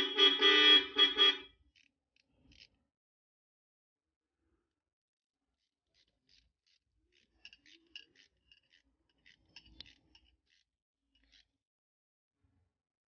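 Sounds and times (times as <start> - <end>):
ratchet wrench clicking: 6.0 - 11.5.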